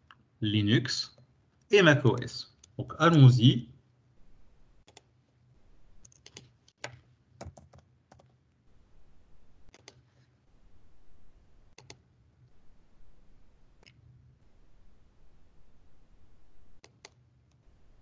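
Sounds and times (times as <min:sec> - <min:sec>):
faint keyboard typing: 0:01.1 - 0:03.0, 0:04.8 - 0:05.2, 0:06.0 - 0:08.4, 0:09.7 - 0:10.3, 0:11.7 - 0:12.1, 0:16.8 - 0:17.7.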